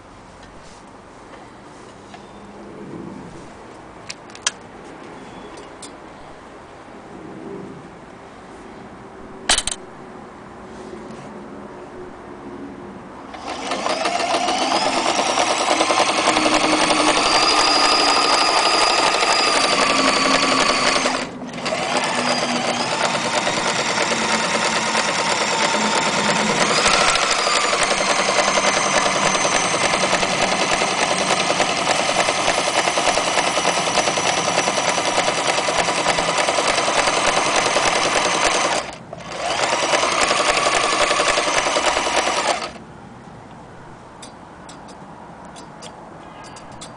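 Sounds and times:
sewing machine motor whine: 0:13.3 - 0:42.8.

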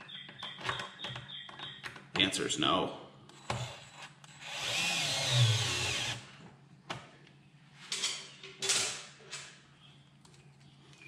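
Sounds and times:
cordless screwdriver running: 0:03.6 - 0:06.2.

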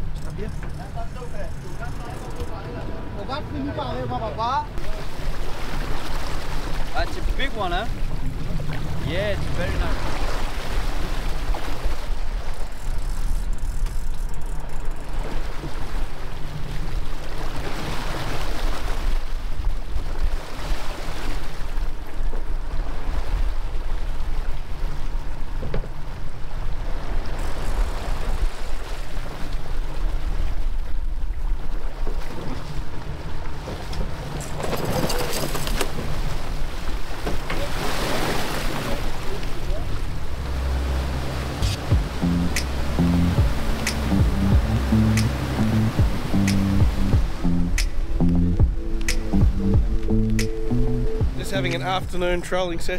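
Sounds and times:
boat engine humming: 0:00.0 - 0:18.6, 0:21.6 - 0:52.9
water rushing along hull: 0:00.0 - 0:52.9
fish thrashing and splashing: 0:34.4 - 0:36.2
wind on microphone: 0:40.1 - 0:51.4.

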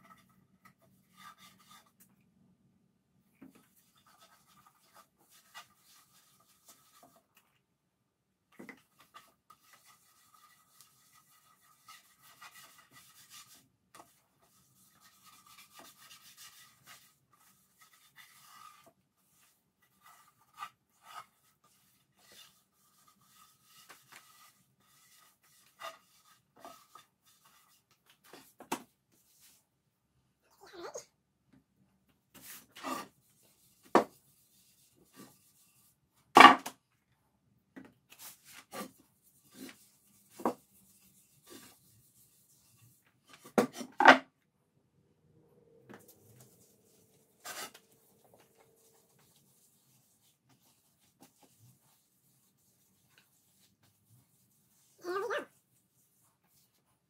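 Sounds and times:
rag wiping wood: 0:08.9 - 0:28.5, 0:46.2 - 0:57.0.

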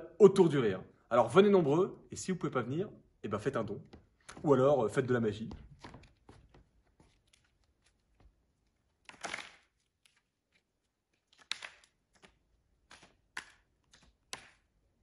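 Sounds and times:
playing card rustle: 0:05.7 - 0:14.7
playing card snaps: 0:09.0 - 0:10.3, 0:11.3 - 0:14.7.

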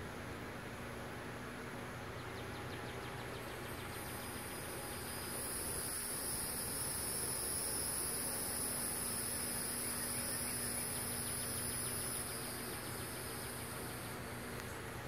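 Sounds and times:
insects chorus: 0:00.2 - 0:15.0.

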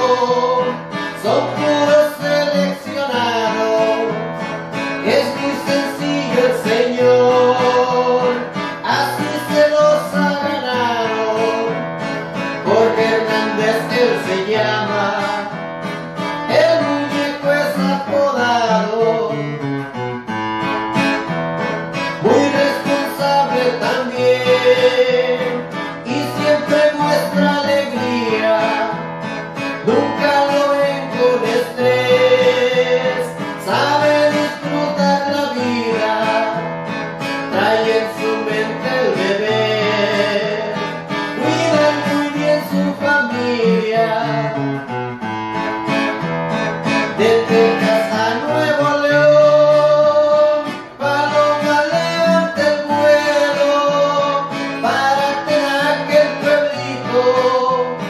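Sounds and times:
man singing: 0:00.0 - 0:20.2, 0:21.9 - 0:45.2, 0:46.8 - 0:58.0
acoustic guitar: 0:00.0 - 0:58.0.

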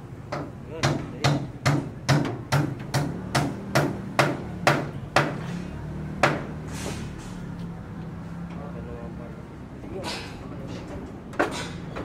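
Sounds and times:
hammer striking wooden boards: 0:00.3 - 0:05.5, 0:06.2 - 0:06.5.

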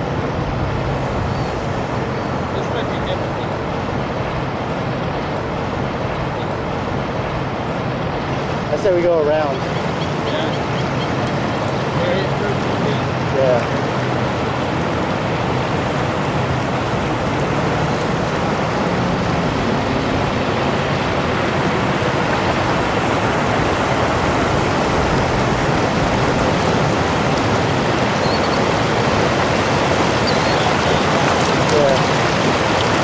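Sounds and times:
river water rushing: 0:00.0 - 0:33.0.

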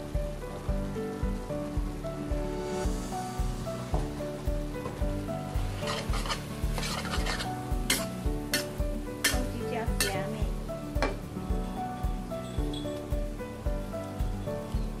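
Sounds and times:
background music with steady beat: 0:00.0 - 0:15.0
food sizzling: 0:00.0 - 0:15.0
metal spatula scraping a wok: 0:05.6 - 0:10.2.

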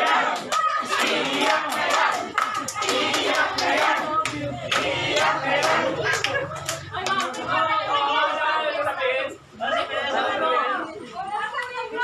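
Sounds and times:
hand claps: 0:00.0 - 0:07.5
people shouting and cheering: 0:00.0 - 0:12.0.

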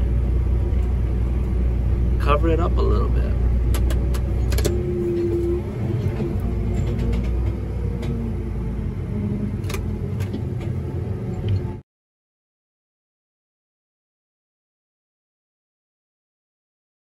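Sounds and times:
tractor running under load: 0:00.0 - 0:11.8.

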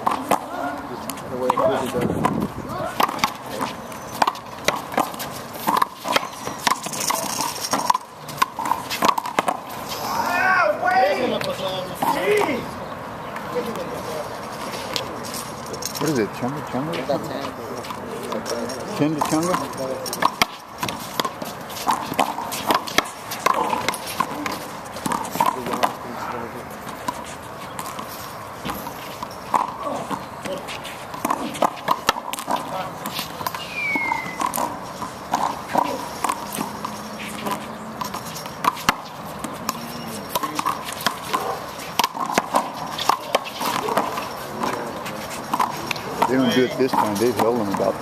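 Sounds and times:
handball smacking off concrete: 0:00.0 - 0:09.7, 0:19.1 - 0:26.0, 0:27.8 - 0:48.0
footsteps scuffing: 0:26.6 - 0:48.0.

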